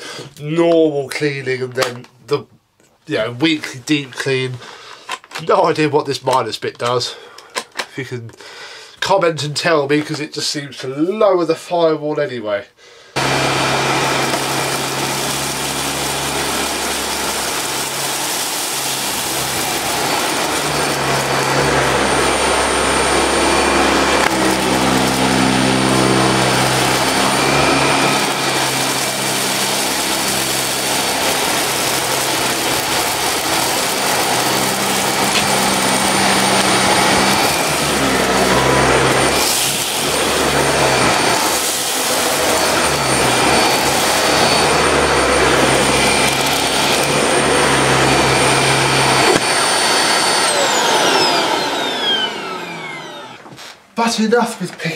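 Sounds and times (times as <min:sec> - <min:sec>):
suction air rush: 0:13.2 - 0:53.7
vacuum cleaner motor hum: 0:13.2 - 0:53.7.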